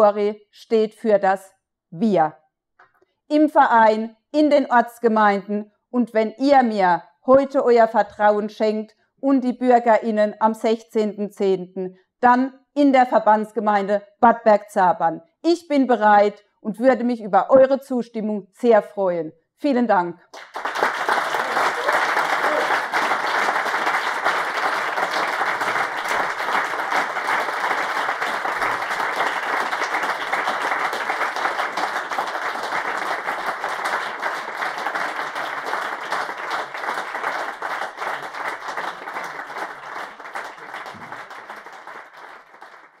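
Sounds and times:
audience applauding: 0:20.3 - 0:43.0.

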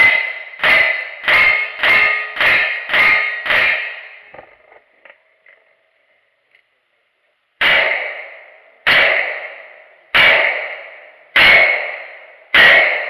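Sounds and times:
rifle shots: 0:00.0 - 0:04.5, 0:07.6 - 0:13.0.

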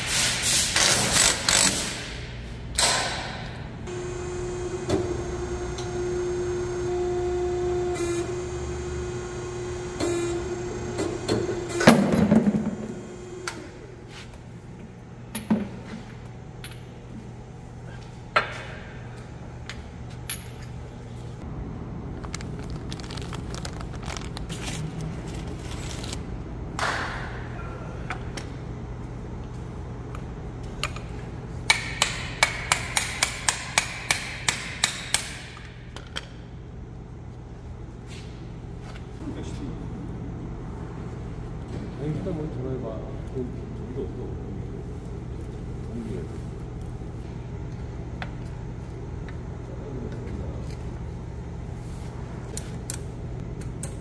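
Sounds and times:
steady low hum: 0:01.0 - 0:54.0.

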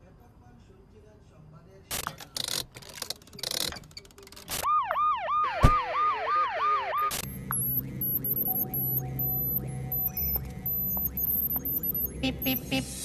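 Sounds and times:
police siren wailing: 0:04.6 - 0:13.0
high electronic chirps: 0:06.0 - 0:13.0
steady low hum: 0:07.1 - 0:13.0.

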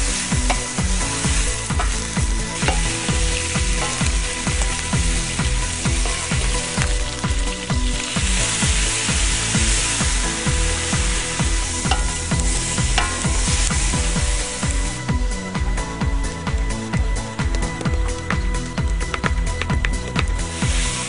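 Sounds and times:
wine poured into hot pan: 0:00.0 - 0:15.3, 0:20.4 - 0:21.0
background music with low beat: 0:00.0 - 0:21.0
meat sizzling in a wok: 0:00.0 - 0:21.0.

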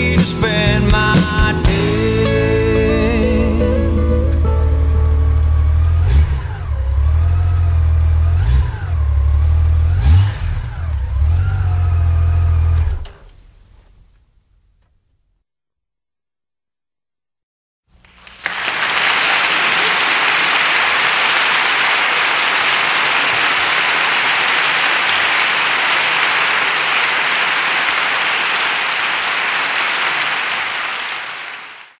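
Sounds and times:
audience applauding: 0:18.0 - 0:32.0.

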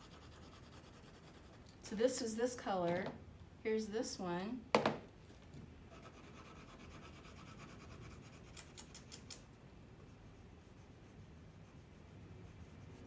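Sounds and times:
pencil scratching on paper: 0:00.0 - 0:01.6, 0:05.9 - 0:08.7.

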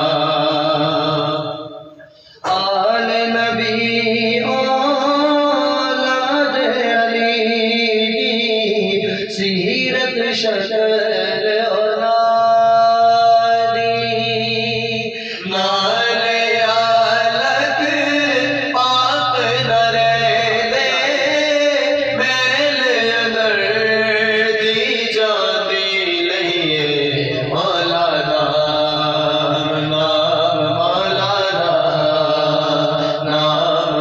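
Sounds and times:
men chanting a melody: 0:12.4 - 0:34.0.

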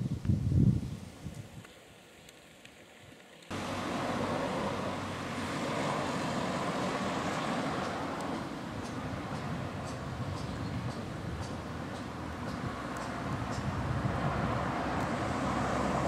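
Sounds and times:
road traffic noise: 0:03.5 - 0:16.0.

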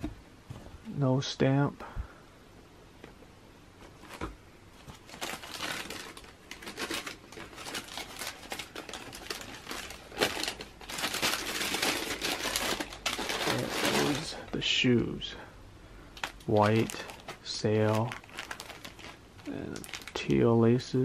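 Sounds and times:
tissue paper rustling: 0:04.0 - 0:14.4, 0:16.5 - 0:20.2.

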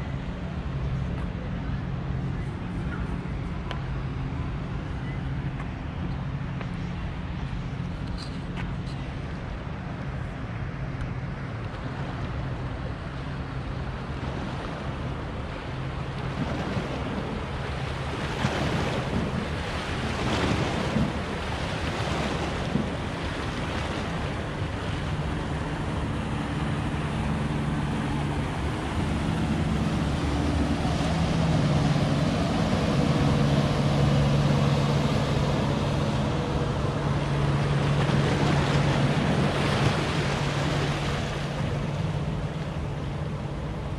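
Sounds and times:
motorboat engine humming: 0:00.0 - 0:43.9
wind buffeting microphone: 0:00.0 - 0:43.9
waves splashing against rocks: 0:14.0 - 0:43.9.

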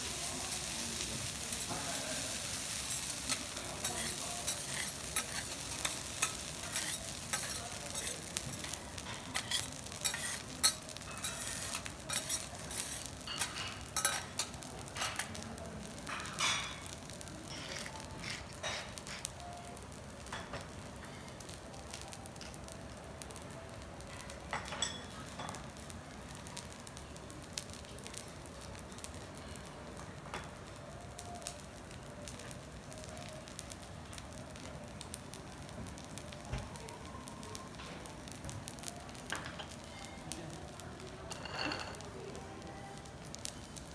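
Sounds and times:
rice sizzling on griddle: 0:00.0 - 0:43.9
steel spatulas scraping griddle: 0:02.2 - 0:14.5, 0:17.4 - 0:19.3.

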